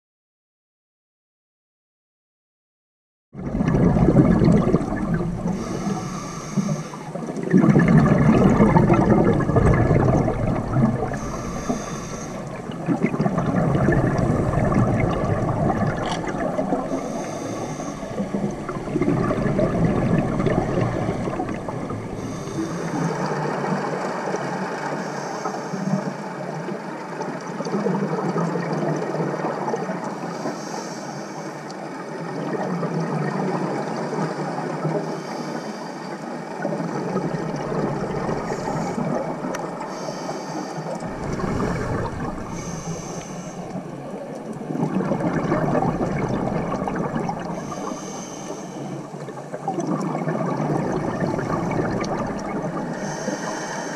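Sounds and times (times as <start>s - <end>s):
gurgle of exhaled bubbles: 3.4s - 24.6s, 36.4s - 40.0s, 40.8s - 53.7s
diver inhaling through regulator: 4.7s - 7.3s, 8.7s - 23.4s, 30.3s - 31.6s, 35.0s - 36.2s, 38.0s - 44.4s, 47.3s - 49.2s, 52.7s - 53.9s.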